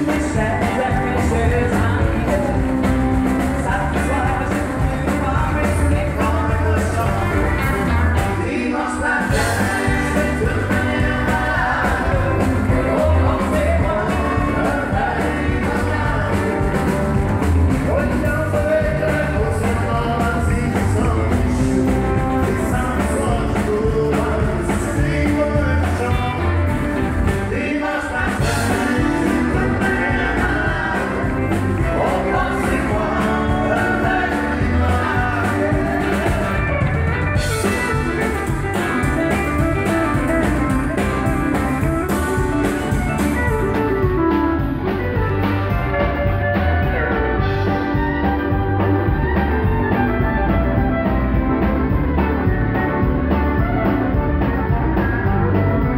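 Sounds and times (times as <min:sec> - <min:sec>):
person singing: 0:00.0 - 0:17.0, 0:17.7 - 0:26.6, 0:27.4 - 0:41.3
country band playing: 0:00.0 - 0:55.9.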